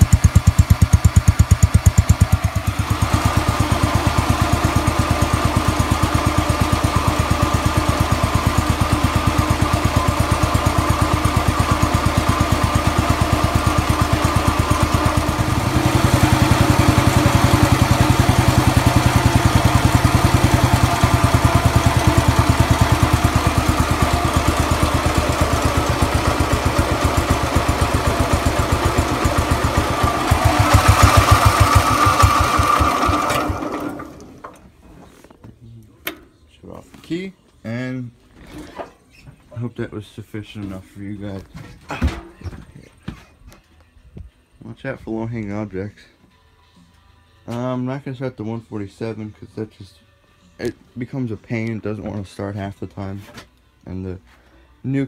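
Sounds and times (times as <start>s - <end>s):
garden tractor engine idling: 0.0s - 34.7s.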